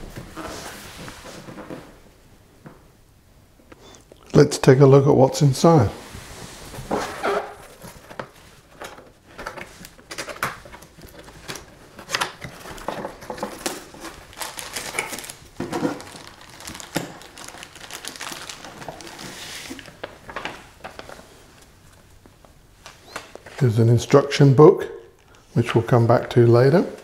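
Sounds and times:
plastic packaging crinkling: 6.9s - 22.1s.

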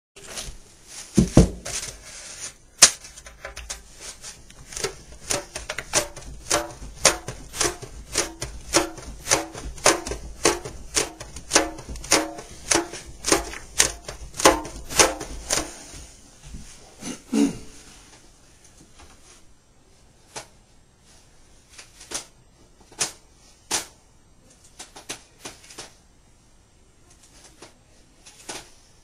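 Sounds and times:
banjo head thumping and ringing: 5.9s - 15.6s.

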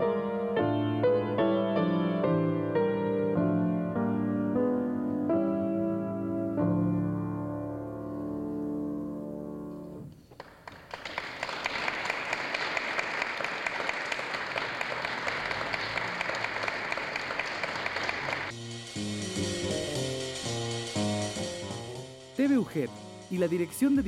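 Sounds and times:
music: 0.0s - 10.3s, 17.4s - 24.0s
audience applauding: 10.2s - 18.5s.

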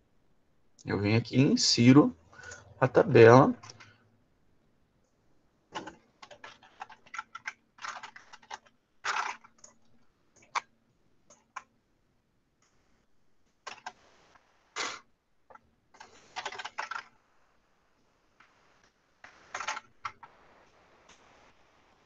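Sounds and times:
computer keyboard typing: 5.8s - 10.7s, 13.6s - 14.0s, 16.0s - 17.1s, 19.2s - 20.3s.

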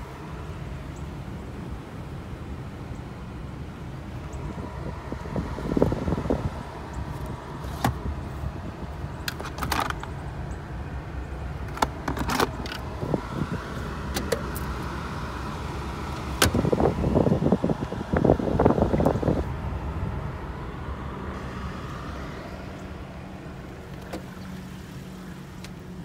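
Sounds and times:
steady low rumble: 0.0s - 25.2s
clicks taps and rattles in car: 11.6s - 12.9s, 14.0s - 14.8s, 16.1s - 16.8s.

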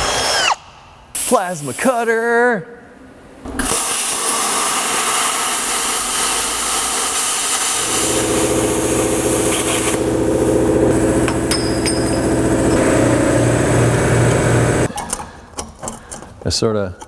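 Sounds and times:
plasma cutter hissing: 3.6s - 10.0s
low fast-pulsing motor hum: 8.1s - 14.9s.

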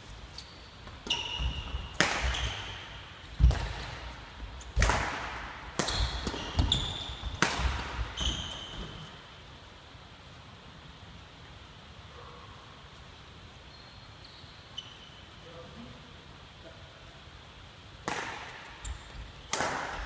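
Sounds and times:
sneakers squeaking: 0.2s - 5.0s, 5.8s - 9.3s, 13.6s - 15.4s, 18.7s - 20.0s
racket striking shuttlecock: 1.0s - 4.1s, 4.7s - 8.6s, 18.0s - 20.0s.

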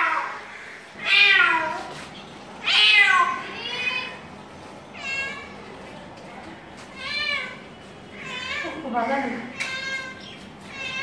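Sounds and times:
cat meowing: 1.0s - 1.9s, 2.6s - 4.2s, 6.9s - 7.6s, 8.2s - 8.9s, 9.5s - 11.0s.

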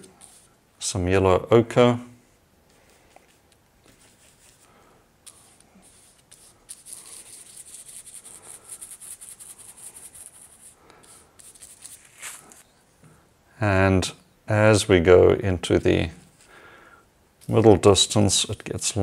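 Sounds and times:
paintbrush scrubbing on panel: 5.3s - 12.6s.

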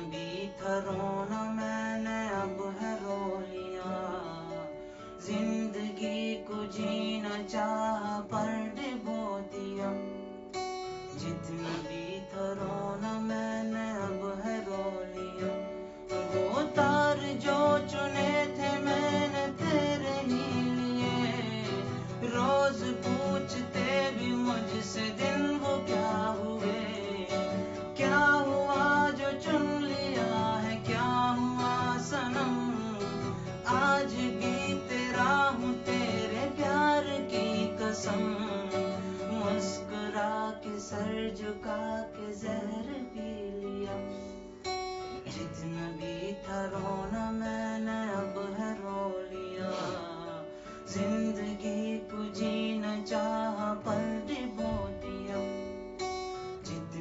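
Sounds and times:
acoustic guitar: 0.0s - 57.0s
person singing: 11.2s - 44.5s, 45.1s - 55.9s.

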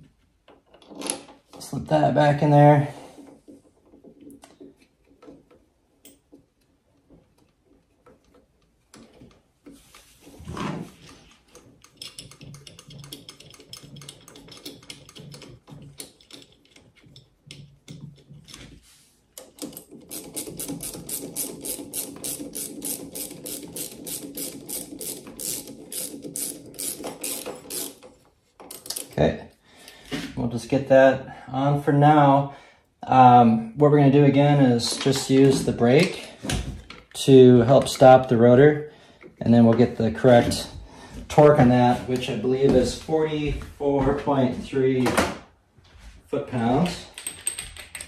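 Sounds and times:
ratchet wrench clicking: 19.5s - 28.1s.

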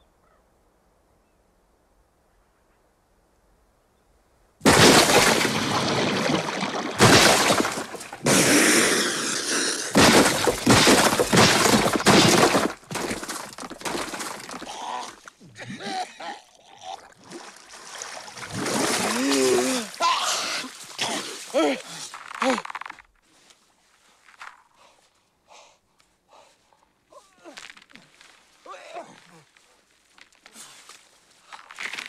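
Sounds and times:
ice crashing and shattering: 4.6s - 14.8s.

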